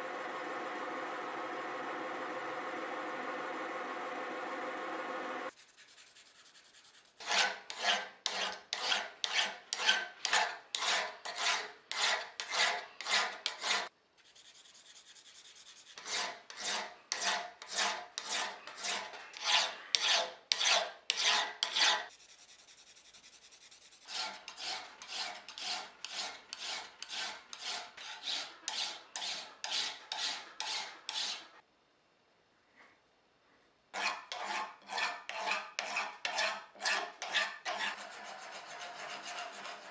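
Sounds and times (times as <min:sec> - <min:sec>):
hand file rasping on steel: 0:07.0 - 0:13.9, 0:16.0 - 0:22.1, 0:23.8 - 0:31.5, 0:33.9 - 0:39.9.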